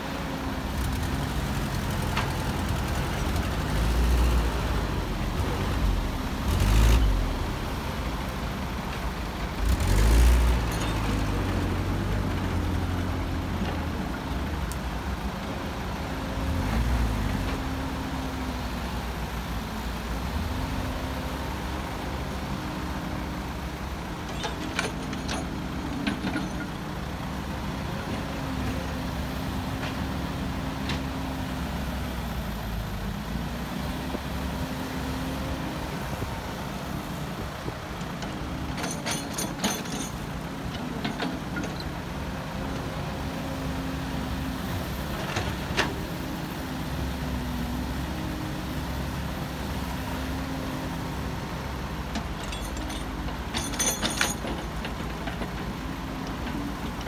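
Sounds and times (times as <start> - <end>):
heavy diesel engines running: 0.0 - 57.0.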